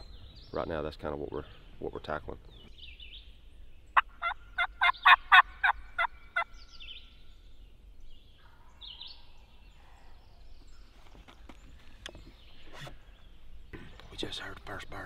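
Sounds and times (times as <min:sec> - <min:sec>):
turkey call sharp notes: 0:04.0 - 0:06.5.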